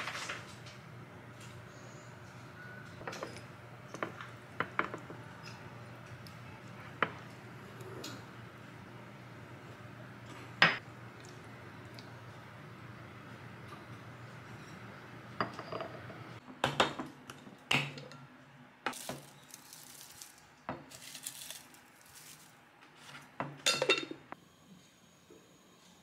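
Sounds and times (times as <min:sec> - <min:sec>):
ceramic bowls clinking: 0:13.8 - 0:16.3, 0:23.5 - 0:24.4.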